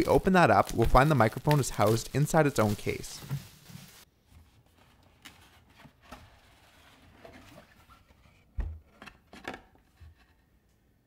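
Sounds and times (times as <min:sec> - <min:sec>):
brushing sounds: 0:00.0 - 0:04.1.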